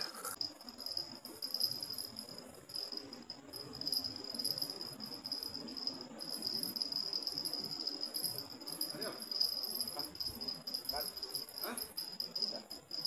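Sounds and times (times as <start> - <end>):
faint low hum of open air: 0.0 - 13.0
high-pitched insect chorus: 0.0 - 13.0.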